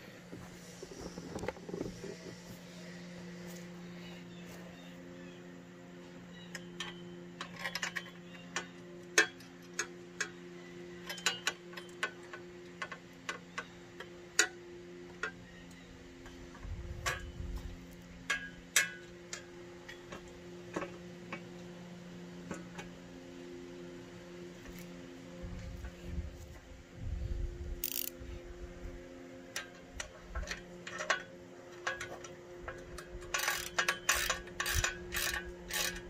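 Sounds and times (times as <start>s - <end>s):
steady low hum: 0.0s - 36.0s
metallic clicks of tools and bolts: 6.5s - 10.4s, 11.0s - 14.6s, 27.8s - 28.2s, 29.5s - 36.0s.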